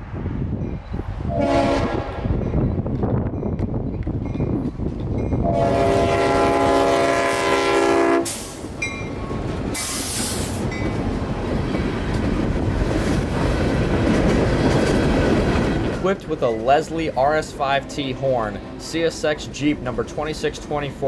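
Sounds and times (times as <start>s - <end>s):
train rumble and wheel clatter: 0.0s - 21.0s
locomotive air horn chord: 1.3s - 2.1s, 5.4s - 8.6s
air hiss bursts: 8.3s - 8.7s, 9.8s - 10.6s.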